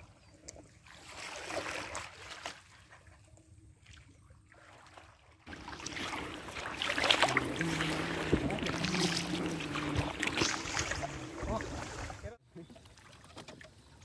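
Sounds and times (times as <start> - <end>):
water splashing and lapping: 0.0 - 14.0.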